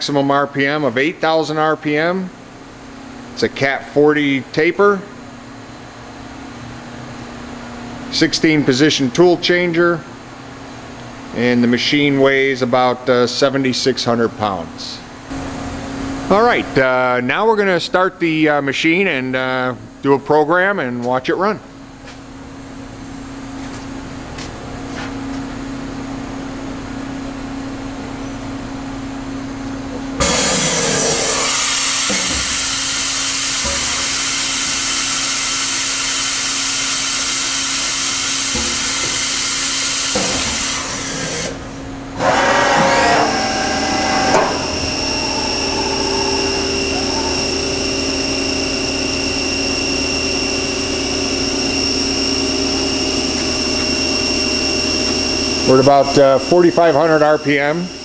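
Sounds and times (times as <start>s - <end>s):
machine hum: 21.6s - 58.0s
spindle high whine: 26.7s - 35.8s, 42.0s - 58.0s.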